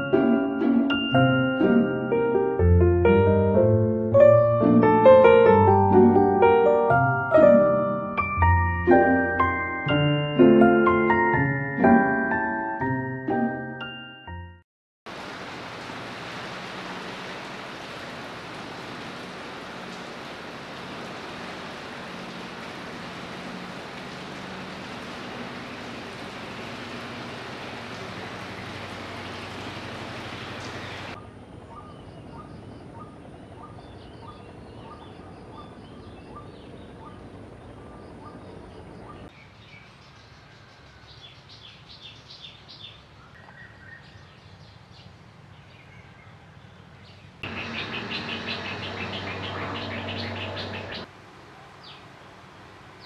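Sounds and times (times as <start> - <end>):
rain falling: 15.1 - 31.2
birds chirping: 27.3 - 51.1.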